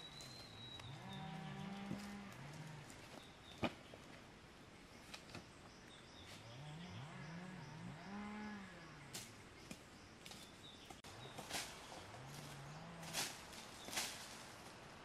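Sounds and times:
faint low animal calls: 0.0s - 3.2s, 6.3s - 9.2s.

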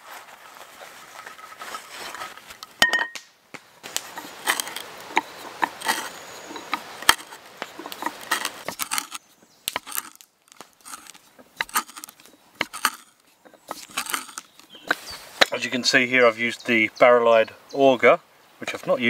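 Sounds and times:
wood crackling and creaking: 0.0s - 2.8s, 3.8s - 16.7s
hand auger boring into wood: 3.9s - 15.0s.

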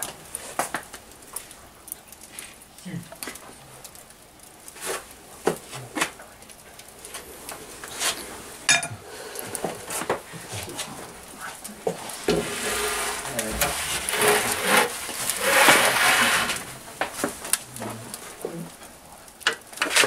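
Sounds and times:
wooden spreader and metal pan clattering: 11.9s - 18.0s, 19.4s - 20.0s.

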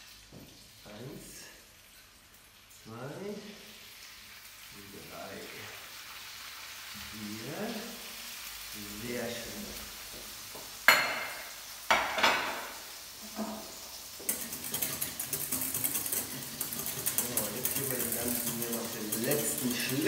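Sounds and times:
fish sizzling in a frying pan: 0.0s - 20.0s
whisk beating against a saucepan: 14.2s - 20.0s.

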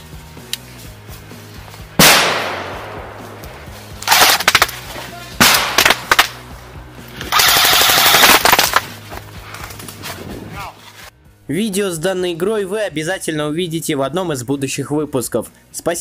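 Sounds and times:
loud crack: 2.0s - 3.2s, 4.0s - 6.5s, 7.2s - 9.0s
airsoft rifle bursts: 7.3s - 8.8s.

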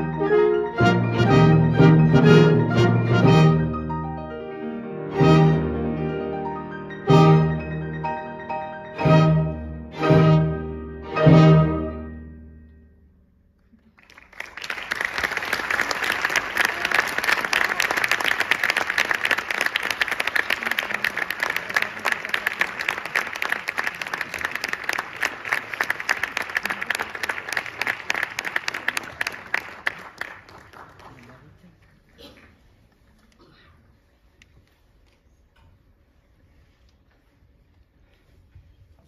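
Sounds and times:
orchestra and piano final chord: 0.0s - 12.8s
audience applause: 13.7s - 32.2s.

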